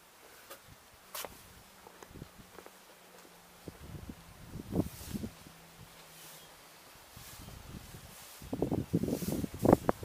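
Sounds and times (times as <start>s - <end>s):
outdoor background hiss: 0.0s - 10.0s
wind rumble on microphone: 2.0s - 2.6s, 3.6s - 6.0s, 7.0s - 10.0s.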